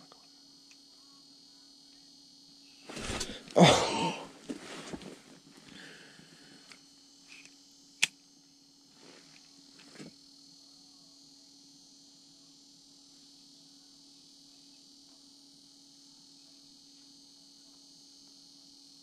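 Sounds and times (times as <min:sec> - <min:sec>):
faint hum and hiss: 0:00.0 - 0:19.0
jacket rustling: 0:02.9 - 0:05.7.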